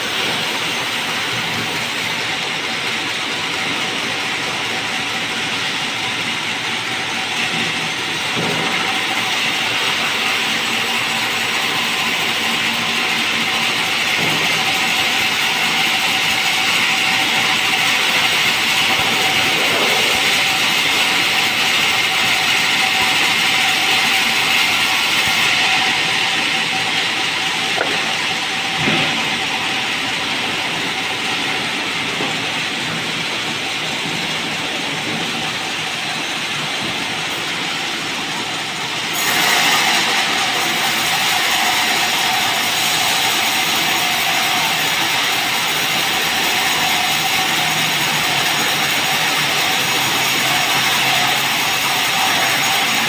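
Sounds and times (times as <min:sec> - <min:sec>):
saw whine: 0:00.0 - 0:53.0
band saw cutting wood: 0:06.8 - 0:33.0, 0:34.1 - 0:53.0.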